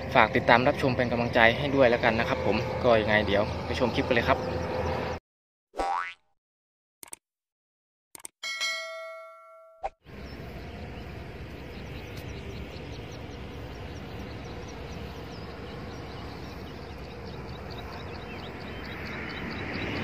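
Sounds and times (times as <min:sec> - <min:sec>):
outdoor rumble by water: 0:00.0 - 0:05.2, 0:10.1 - 0:20.0
small bird chirping: 0:10.1 - 0:20.0.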